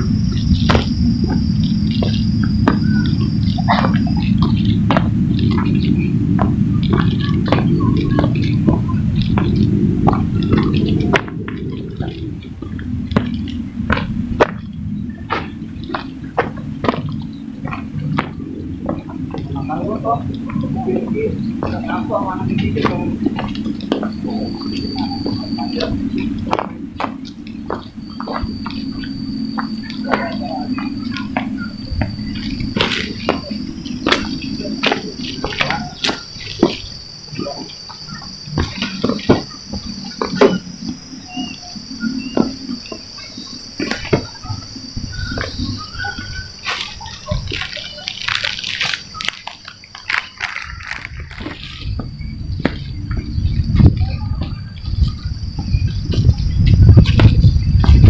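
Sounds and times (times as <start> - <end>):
crickets chirping: 0.0 - 58.0
footsteps on dirt path: 0.0 - 58.0
low steady hum: 0.0 - 58.0
steady low rumble: 0.0 - 58.0.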